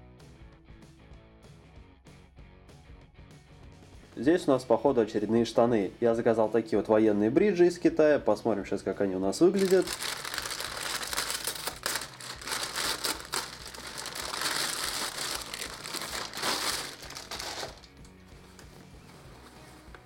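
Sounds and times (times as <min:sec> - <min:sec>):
plastic bag crinkling: 0:09.6 - 0:18.0.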